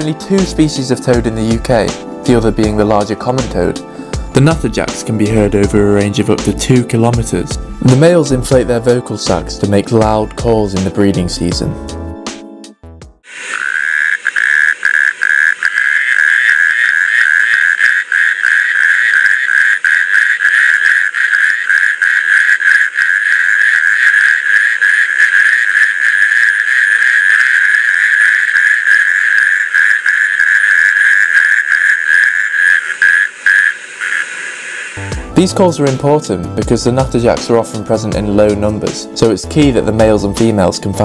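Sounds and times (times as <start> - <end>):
toads churring in chorus: 13.3 - 35.0.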